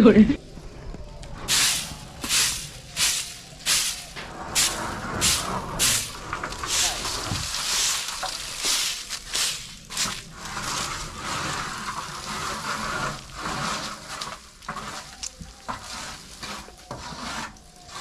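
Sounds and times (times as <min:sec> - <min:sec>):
roof sheets scraping and crunching: 0:01.2 - 0:18.0.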